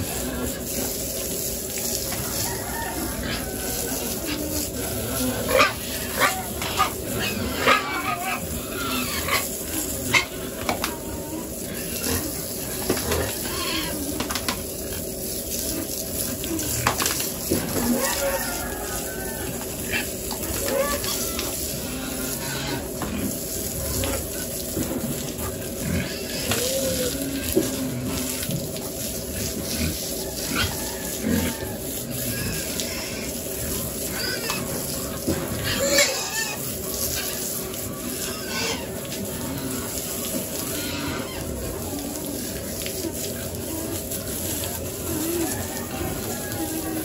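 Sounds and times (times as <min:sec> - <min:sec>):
pigs calling: 0:00.0 - 0:47.0
water hose spraying: 0:00.0 - 0:47.0
piglets squealing: 0:02.3 - 0:14.1, 0:17.6 - 0:23.0, 0:25.9 - 0:28.3, 0:29.9 - 0:43.3.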